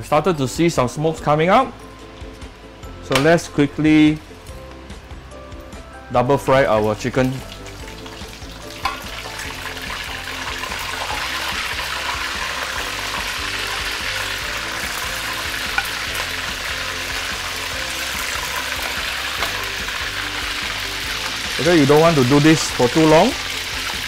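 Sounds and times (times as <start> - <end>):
chicken sizzling in hot oil: 6.5 - 24.0.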